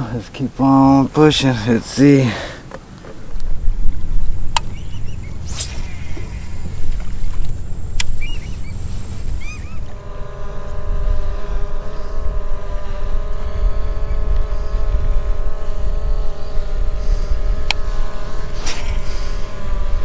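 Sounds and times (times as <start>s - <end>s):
kayak drive whine and rumble: 0.0s - 20.0s
sharp click: 4.5s - 4.8s, 6.9s - 8.6s
short hiss: 5.4s - 9.5s.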